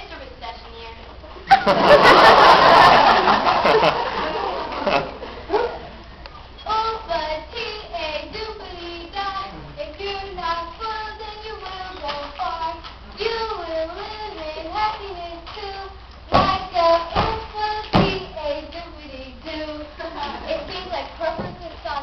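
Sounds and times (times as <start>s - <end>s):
child singing into microphone: 6.6s - 22.0s.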